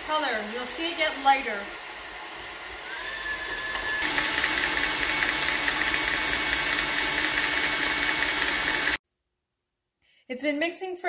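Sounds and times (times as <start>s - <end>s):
stand mixer whirring: 1.8s - 9.0s.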